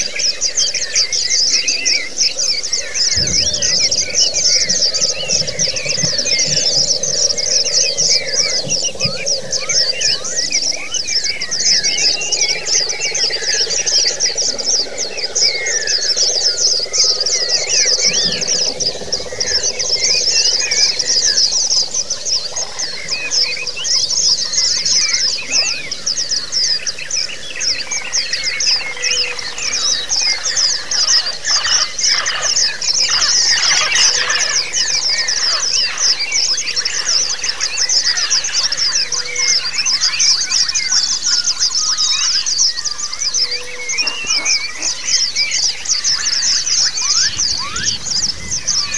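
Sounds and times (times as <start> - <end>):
small birds twittering: 0.0 - 48.9.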